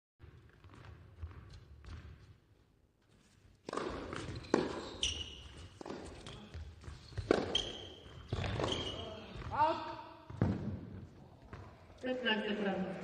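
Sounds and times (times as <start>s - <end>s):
racket striking ball: 3.6s - 4.9s, 5.8s - 6.4s, 7.2s - 8.8s
tennis ball bouncing: 3.6s - 9.6s
shoes squeaking on court: 3.7s - 9.6s.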